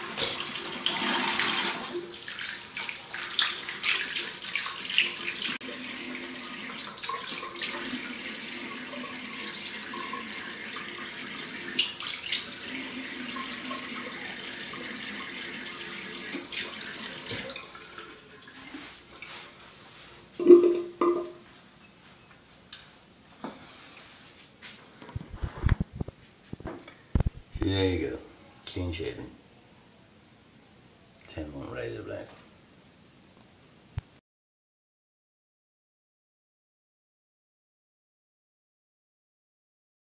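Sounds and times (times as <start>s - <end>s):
tap water running into sink: 0.0s - 18.9s.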